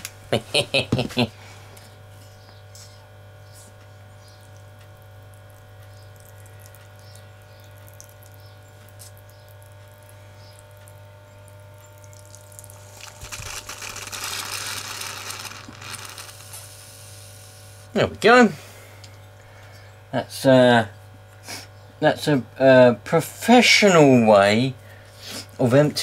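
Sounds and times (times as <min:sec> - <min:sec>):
low electrical hum: 0:00.0 - 0:26.0
fuel spluttering through tube: 0:12.0 - 0:17.4.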